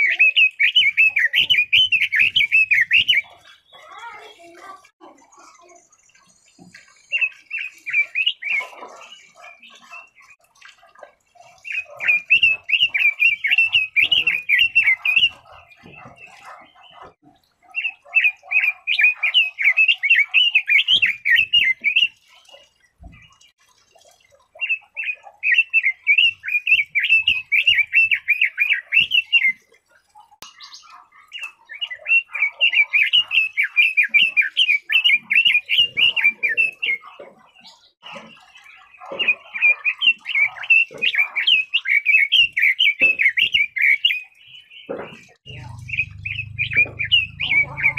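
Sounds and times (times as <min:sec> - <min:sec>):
bird singing rapid notes: 0:00.0 - 0:04.4, 0:05.1 - 0:10.4, 0:11.5 - 0:22.5, 0:30.4 - 0:47.9.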